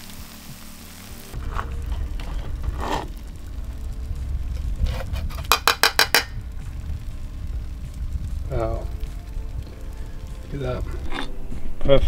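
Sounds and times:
low rumble: 0.0s - 11.8s
metal spoon tapping a plate: 5.4s - 6.3s.

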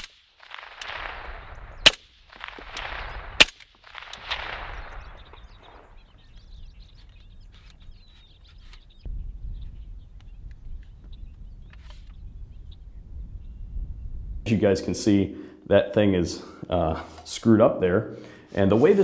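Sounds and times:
suppressed pistol shots: 0.0s - 6.0s
crack and rolling echo: 0.0s - 6.9s
low rumble: 0.5s - 6.9s.

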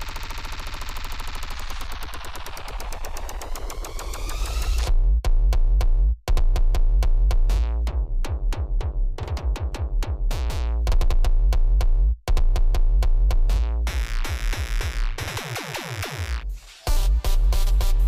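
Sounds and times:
electronic dance music: 0.0s - 4.9s, 13.6s - 18.0s.

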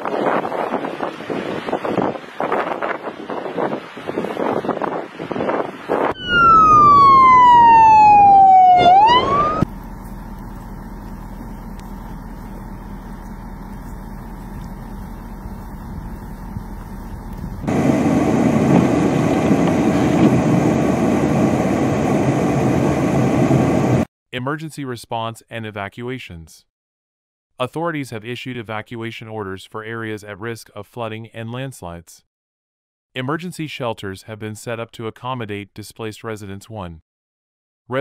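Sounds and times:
emergency vehicle siren wailing: 6.0s - 9.7s
steady noise: 9.2s - 24.1s.

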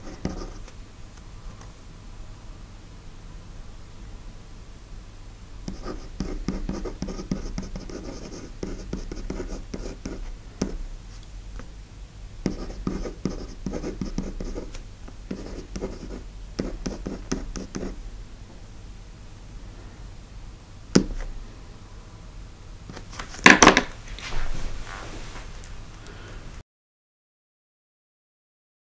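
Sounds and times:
pencil scratching on paper: 0.0s - 0.7s, 5.7s - 10.8s, 12.4s - 18.0s
pencil tap: 21.0s - 21.3s.

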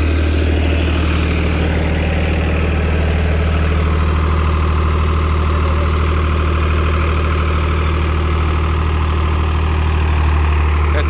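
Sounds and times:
tractor diesel engine idling: 0.0s - 11.0s.

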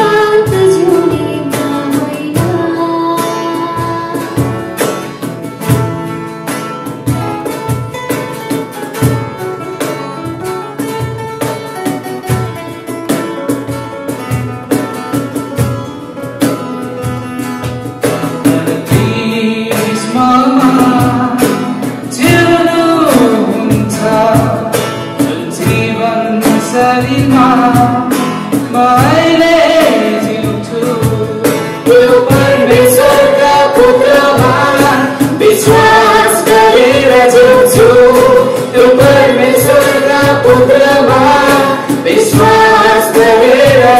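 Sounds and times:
woman singing: 0.0s - 5.1s, 18.4s - 43.9s
acoustic guitar strumming: 0.0s - 43.9s
man singing worship song: 18.4s - 43.9s.

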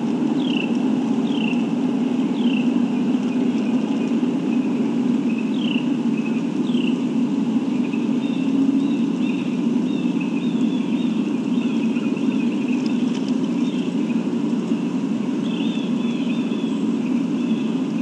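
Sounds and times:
birds chirping: 0.0s - 18.0s
steady low drone: 0.0s - 18.0s.

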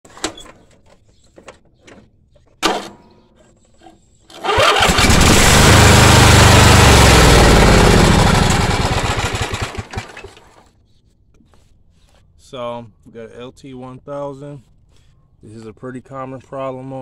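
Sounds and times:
lawn tractor engine starting and running: 4.3s - 10.7s.

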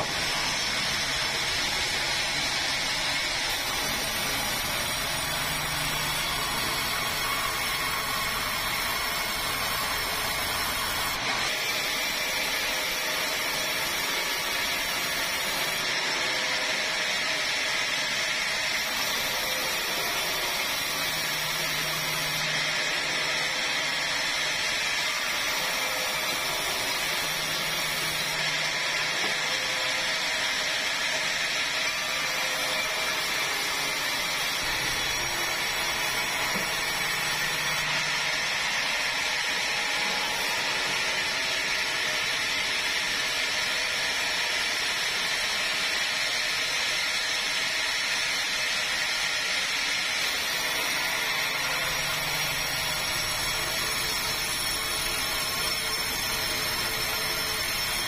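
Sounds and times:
sawmill saw cutting timber: 0.0s - 58.0s.

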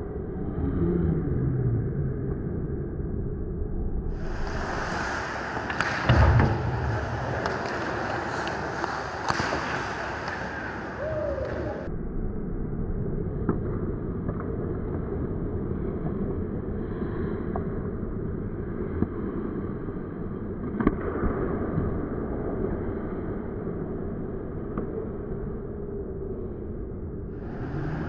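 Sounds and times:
muffled rink rumble: 0.0s - 28.0s
hockey sticks and pucks clacking: 4.2s - 11.9s, 20.6s - 22.0s.

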